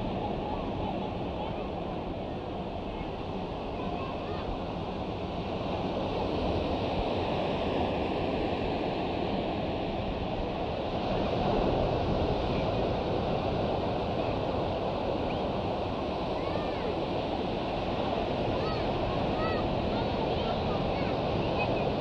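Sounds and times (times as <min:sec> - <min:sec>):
faint voices: 0:00.0 - 0:05.0, 0:14.0 - 0:22.0
surf washing: 0:00.0 - 0:22.0.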